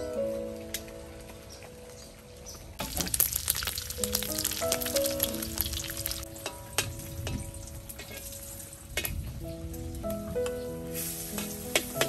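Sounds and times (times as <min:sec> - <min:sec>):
soft background music: 0:00.0 - 0:12.0
oil crackling spits: 0:02.8 - 0:06.2
pork sizzling in hot oil: 0:02.8 - 0:09.8, 0:10.8 - 0:12.0.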